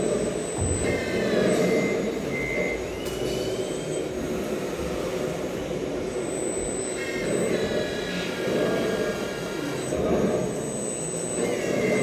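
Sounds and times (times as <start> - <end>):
short high beeps: 0.8 - 4.1.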